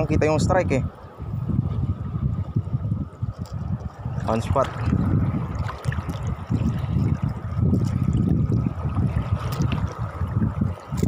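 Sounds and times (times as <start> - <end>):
seawater sloshing and lapping: 3.5 - 11.0.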